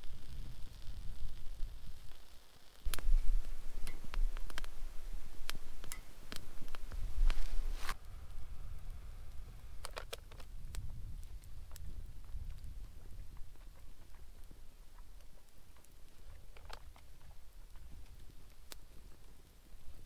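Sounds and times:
low rumble: 2.9s - 14.4s.

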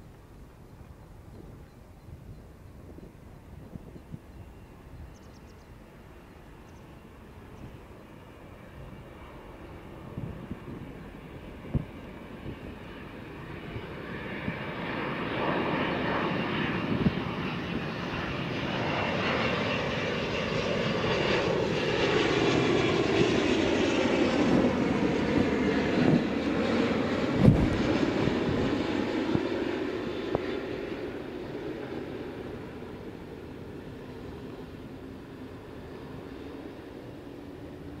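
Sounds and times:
faint whining tones: 0.0s - 15.9s
jet engines of passing airliner: 0.0s - 38.0s.

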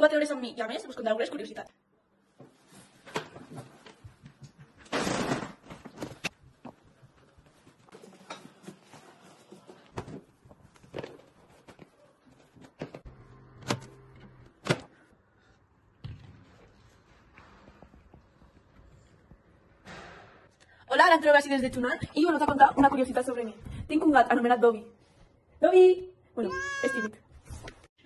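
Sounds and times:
objects being handled: 5.6s - 13.1s.

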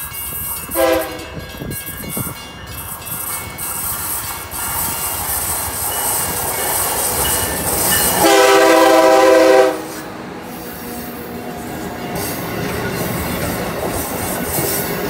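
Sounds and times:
train rolling noise: 0.0s - 15.0s
train horn chord: 0.7s - 1.4s, 8.2s - 10.2s.

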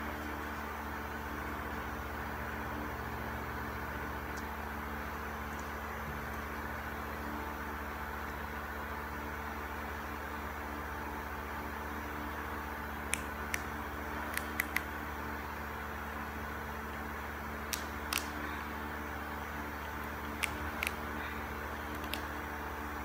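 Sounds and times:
electric fan humming: 0.0s - 23.0s
small sharp clicks: 14.3s - 14.9s, 17.7s - 18.4s, 20.4s - 21.0s, 21.9s - 22.3s.

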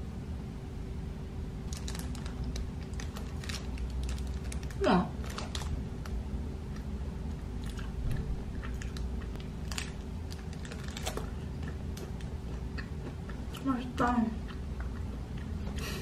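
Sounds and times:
low hum: 0.0s - 16.0s
plastic wrapper crackling: 1.7s - 6.2s, 8.9s - 11.4s
chewing and biting snack: 6.7s - 16.0s.

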